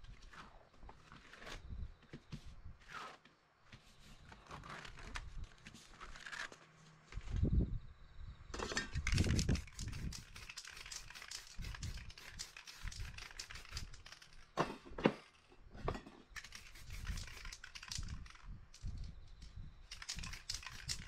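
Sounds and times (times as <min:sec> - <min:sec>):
small clicks and crinkles: 0:04.2 - 0:07.4, 0:08.7 - 0:14.5
spray paint can hissing: 0:09.2 - 0:14.4, 0:16.4 - 0:18.4, 0:19.9 - 0:21.0.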